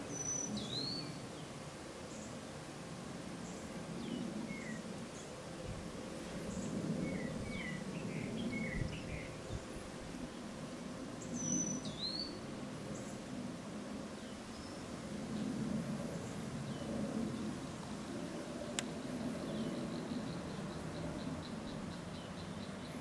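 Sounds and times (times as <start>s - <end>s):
low background noise: 0.0s - 23.0s
small birds chirping: 11.2s - 13.2s, 18.6s - 23.0s.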